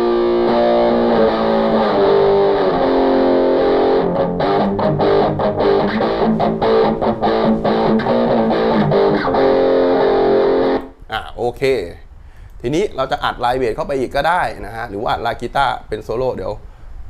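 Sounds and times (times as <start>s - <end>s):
electric guitar chords: 0.0s - 11.0s.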